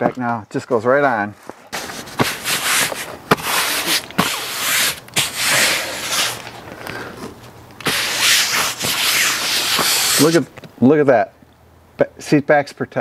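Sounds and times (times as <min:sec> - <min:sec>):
canvas cover rustling and rubbing: 0:01.7 - 0:06.7, 0:07.8 - 0:10.4.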